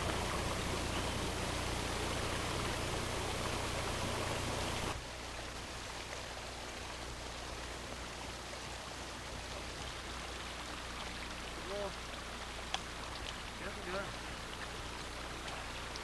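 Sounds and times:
stream rushing over rocks: 0.0 - 9.0.

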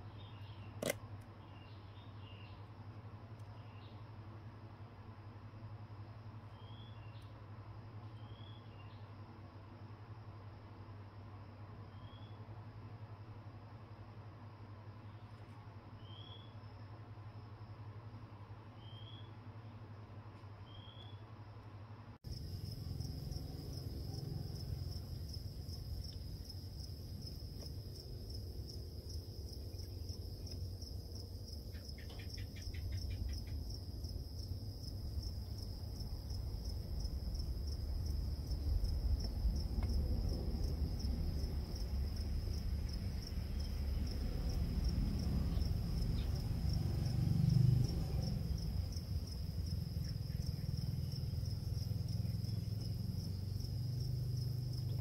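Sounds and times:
low background rumble: 22.2 - 55.0
insect trilling: 22.3 - 34.5, 39.2 - 55.0.

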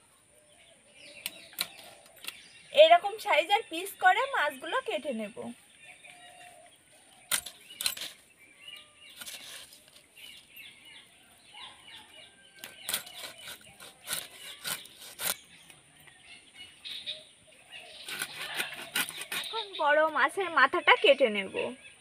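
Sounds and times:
small birds chirping: 0.0 - 22.0
blade cutting through fish bone: 12.6 - 15.4, 18.0 - 19.7.

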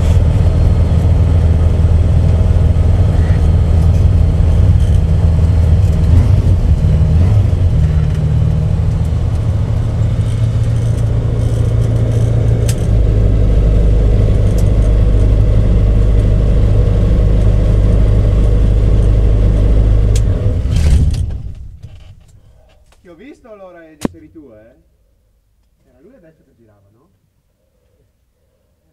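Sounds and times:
engine running down to stop: 0.0 - 22.1
light aircraft engine running: 0.0 - 22.1.

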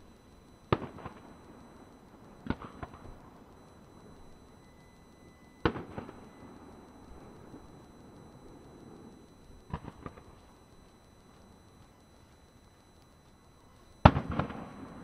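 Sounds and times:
firework shells bursting: 5.6 - 6.5
weaker firework cracks: 5.6 - 6.7, 13.8 - 15.0.

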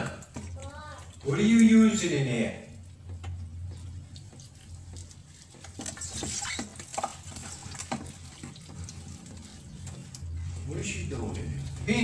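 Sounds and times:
wet squelches and slaps: 2.9 - 10.4.

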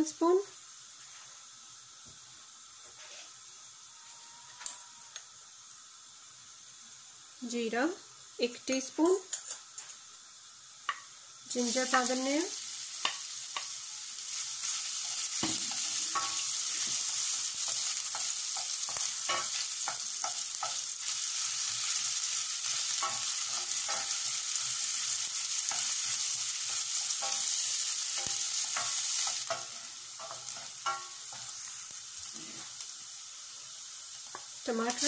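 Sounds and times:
spices sizzling in hot oil: 0.0 - 35.0
wooden spatula scraping a pan: 2.9 - 3.4.

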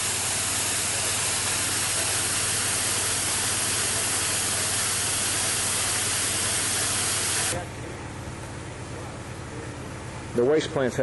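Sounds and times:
water pouring from hose: 0.0 - 7.6.

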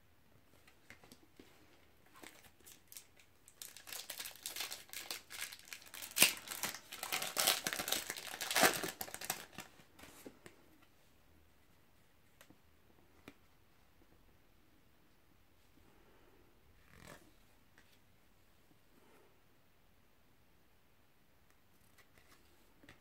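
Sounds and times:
plastic wrapper crackling: 2.2 - 9.7.

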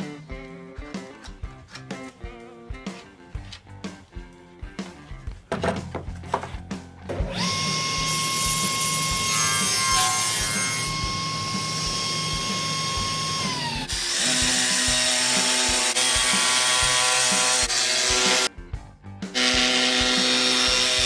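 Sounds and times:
table saw whining: 7.2 - 18.5, 19.3 - 21.0
jigsaw buzzing: 7.3 - 18.5, 19.3 - 21.0.

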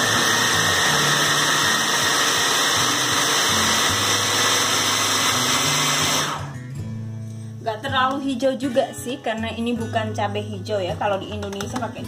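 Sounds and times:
food processor chopping: 0.0 - 6.5.

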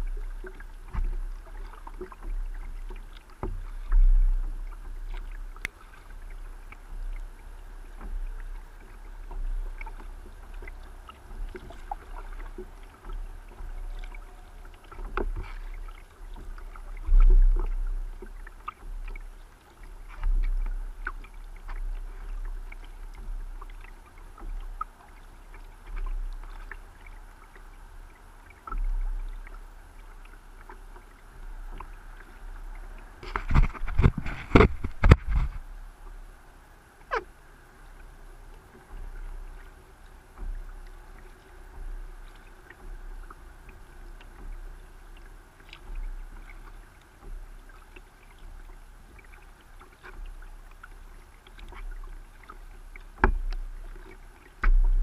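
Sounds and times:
paddle splashing in water: 0.0 - 55.0
low thump: 33.2 - 35.7, 54.6 - 55.0.

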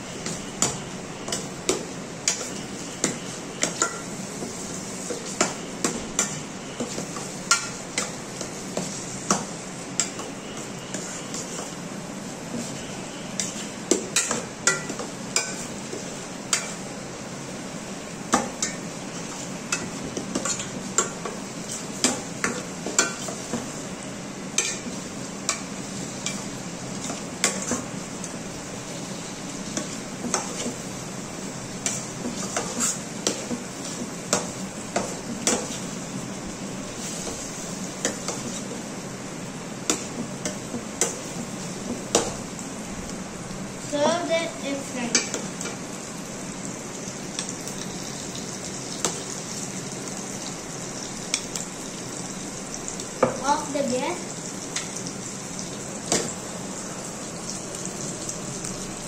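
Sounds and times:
frying sizzle: 0.0 - 59.0
metal spoon scraping a pan: 24.6 - 24.9, 31.8 - 34.0.

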